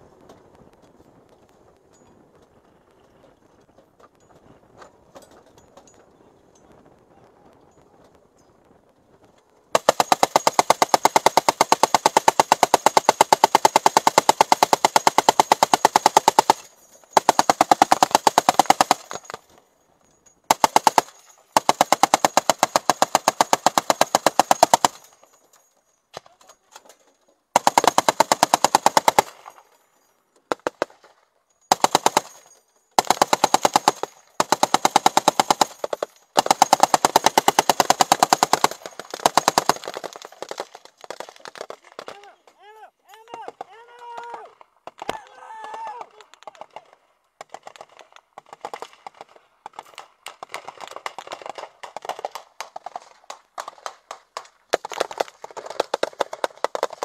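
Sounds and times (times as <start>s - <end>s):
machine gun bursts: 9.7s - 19.6s, 20.5s - 25.4s, 27.5s - 29.8s, 31.6s - 42.3s.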